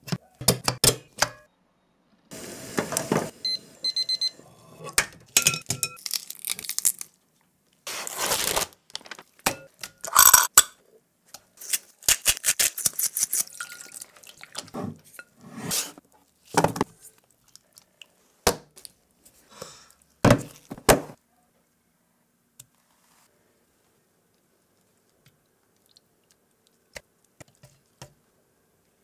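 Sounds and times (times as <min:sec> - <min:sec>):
eggshell crackling: 0:06.0 - 0:07.2.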